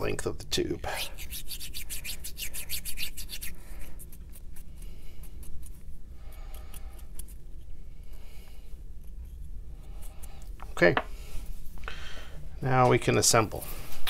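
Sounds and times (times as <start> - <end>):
cotton swab scrubbing inside tube: 1.0 - 7.8.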